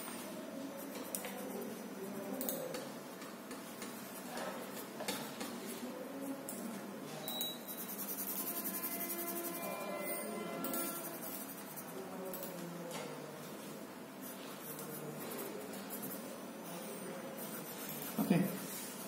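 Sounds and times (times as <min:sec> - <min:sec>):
pencil scratching on paper: 0:07.7 - 0:12.1, 0:14.2 - 0:16.4, 0:17.4 - 0:19.0.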